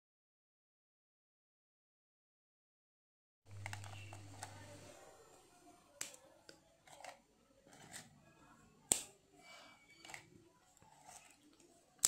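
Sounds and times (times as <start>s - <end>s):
faint low hum: 3.5s - 12.0s.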